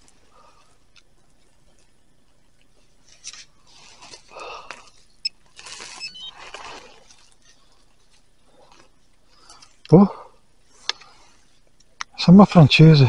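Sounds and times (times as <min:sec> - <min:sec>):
gloved hands rustling leaf litter: 0:02.8 - 0:09.5
high chirps: 0:05.2 - 0:06.4.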